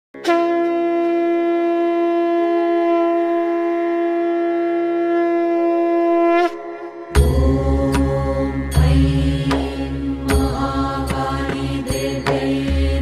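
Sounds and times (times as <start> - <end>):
long wind instrument note: 0.2 - 9.0.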